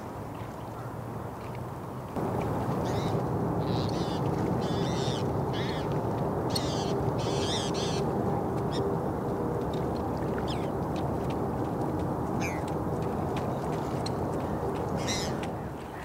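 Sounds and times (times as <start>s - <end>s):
distant highway traffic rumble: 2.1s - 16.0s
raspy bird calls: 2.8s - 5.9s, 6.5s - 8.0s.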